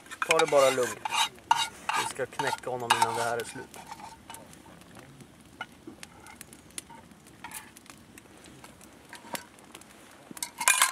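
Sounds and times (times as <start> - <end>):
handling clicks and rustles: 8.6 - 10.9.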